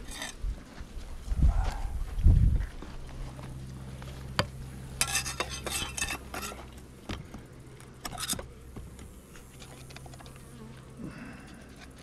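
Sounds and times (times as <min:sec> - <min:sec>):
metal tool scraping wood: 0:00.0 - 0:00.4, 0:05.0 - 0:06.7, 0:08.0 - 0:08.5.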